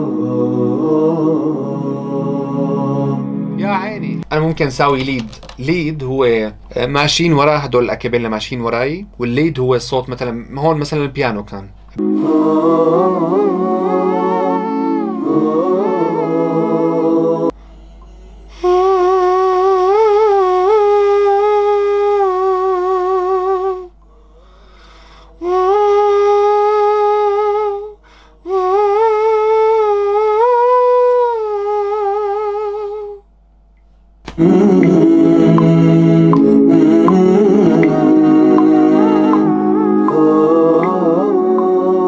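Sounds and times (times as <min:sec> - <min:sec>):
a cappella vocal harmony: 0:00.0 - 0:04.2, 0:12.0 - 0:17.7, 0:18.4 - 0:33.2, 0:34.3 - 0:42.0
man humming melody: 0:12.0 - 0:17.5, 0:18.5 - 0:24.6, 0:25.3 - 0:33.3, 0:34.4 - 0:42.0.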